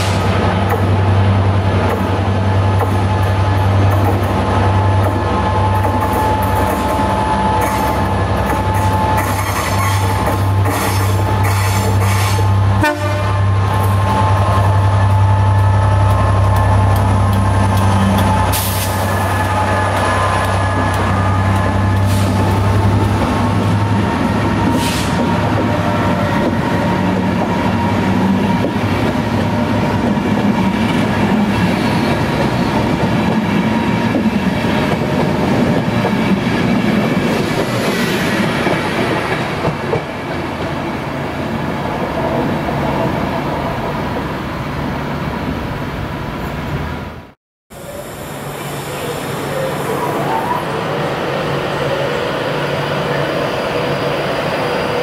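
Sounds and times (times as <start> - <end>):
train wheels clattering on track: 0.0 - 1.0, 1.7 - 12.5, 15.1 - 40.7
locomotive hum: 0.0 - 55.0.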